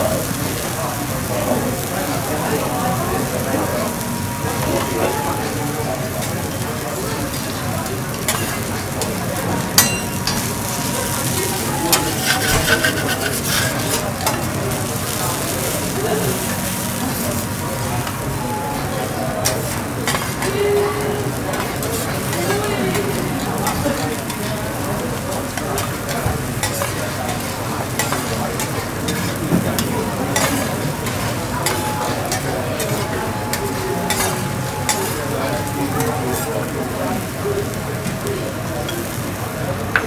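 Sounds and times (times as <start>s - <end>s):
food sizzling on griddle: 0.0s - 40.0s
sharp ringing clink: 9.8s - 10.5s
metal spatula scraping griddle: 11.6s - 14.0s.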